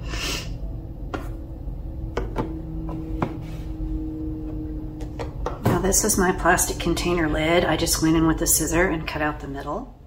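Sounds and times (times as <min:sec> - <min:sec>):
low hum and rumble: 0:00.0 - 0:10.0.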